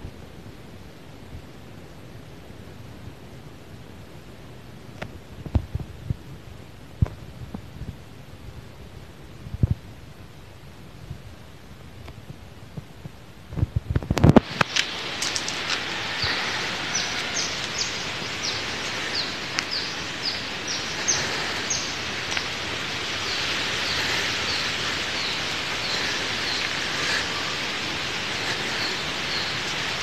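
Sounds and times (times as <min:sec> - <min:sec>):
forest background hiss: 0:00.0 - 0:30.0
bird chirping: 0:16.1 - 0:30.0.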